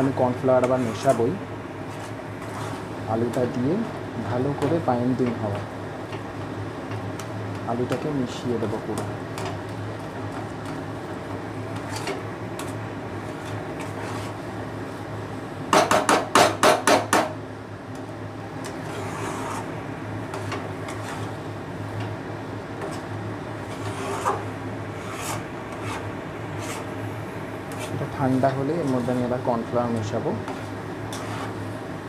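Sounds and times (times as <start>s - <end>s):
spatula scraping a pan: 0.6s - 1.2s, 1.8s - 3.0s, 11.8s - 14.4s, 18.7s - 19.7s, 20.3s - 21.5s, 23.6s - 27.0s, 27.7s - 29.5s, 30.4s - 31.7s
spatula knocking against pan: 15.7s - 17.4s.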